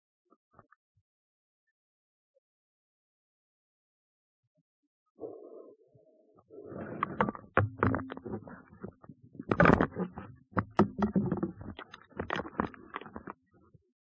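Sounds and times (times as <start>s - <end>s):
underwater knocks clicks and scrapes: 6.7s - 13.9s.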